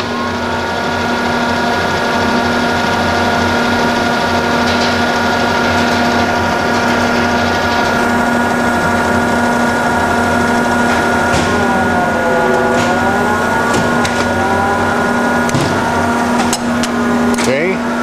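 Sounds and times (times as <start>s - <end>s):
grinder machine hum and whine: 0.0s - 18.0s.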